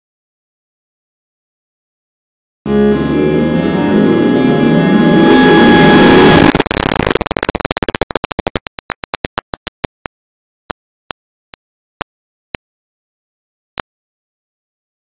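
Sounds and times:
dissonant piano note cluster: 2.7 - 6.5
stuttering digital clicks: 6.2 - 10.1.

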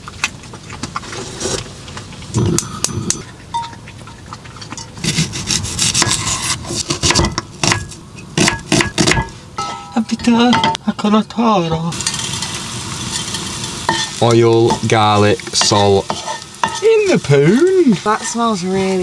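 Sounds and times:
utensils clattering: 11.9 - 19.0.

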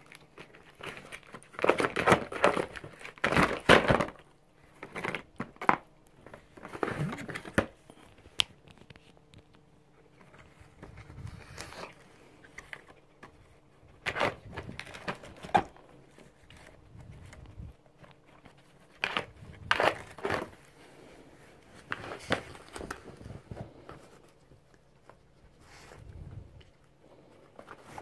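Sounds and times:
cardboard crackling and ripping: 0.0 - 4.2, 4.8 - 7.8, 10.2 - 13.3, 14.0 - 20.8.

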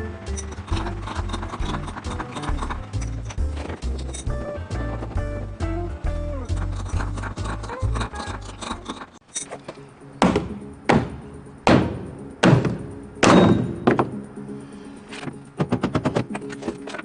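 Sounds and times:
background music: 0.0 - 17.0
hammer blows on wood: 10.2 - 14.2.

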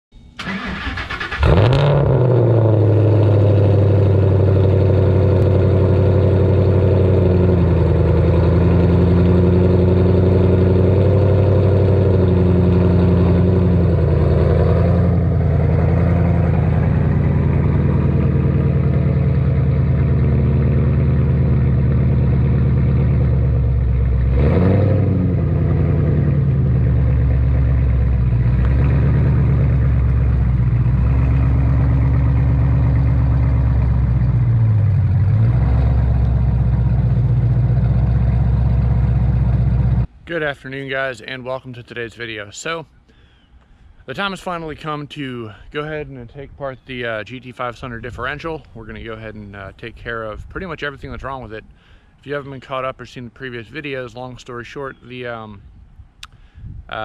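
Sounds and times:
engine rev blip: 0.1 - 40.1
car engine starting and idling: 0.2 - 40.2.

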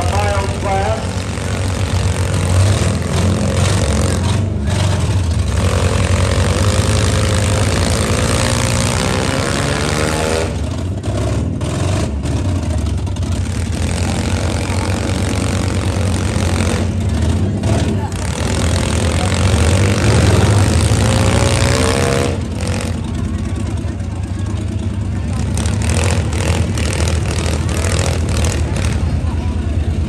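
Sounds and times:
engine revving up: 0.0 - 12.6, 13.4 - 23.1, 25.3 - 29.4
car engines running loudly: 0.0 - 30.0.

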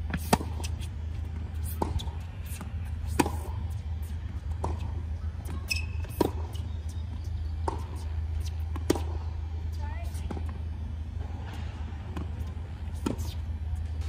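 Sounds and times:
steady low hum: 0.0 - 14.0
tennis ball bouncing: 0.0 - 14.0
tennis ball struck by racket: 0.1 - 0.8, 1.4 - 6.7, 7.6 - 9.3
shoe squeak: 1.6 - 8.7.

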